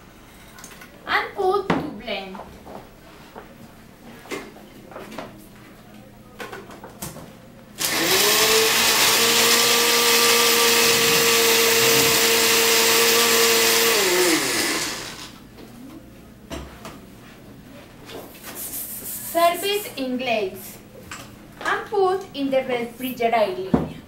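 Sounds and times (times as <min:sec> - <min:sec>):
blender running: 0:07.8 - 0:15.4.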